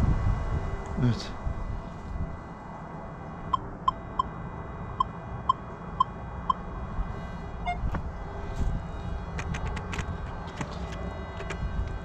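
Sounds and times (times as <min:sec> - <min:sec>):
metal detector beeps: 0:07.6 - 0:07.9.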